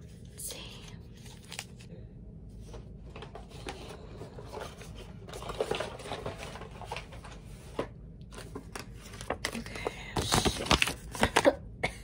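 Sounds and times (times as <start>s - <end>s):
small objects clattering and rustling: 3.1s - 11.4s.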